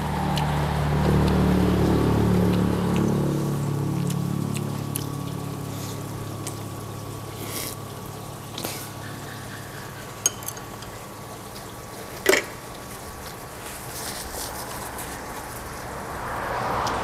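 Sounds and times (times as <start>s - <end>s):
broth bubbling: 0.0s - 16.8s.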